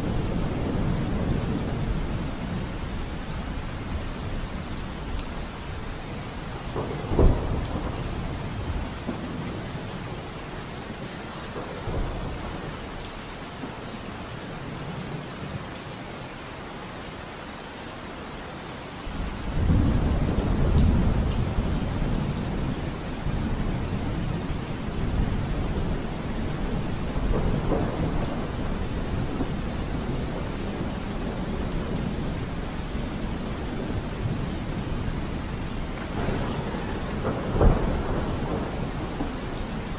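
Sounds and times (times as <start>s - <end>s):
low thunder rumble: 0.0s - 10.3s, 19.1s - 39.9s
steady rain: 0.0s - 39.9s
sharp thunder clap: 36.0s - 39.4s.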